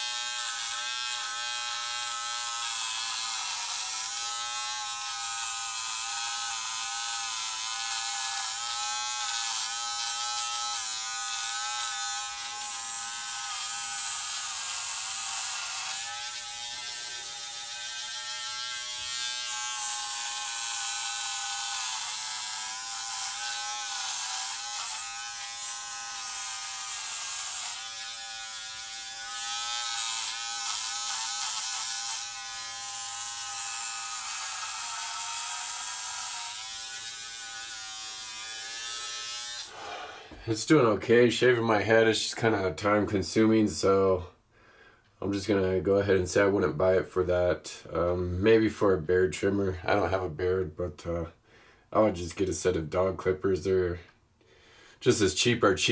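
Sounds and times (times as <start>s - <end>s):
electric hair trimmer buzzing: 0.0s - 40.4s.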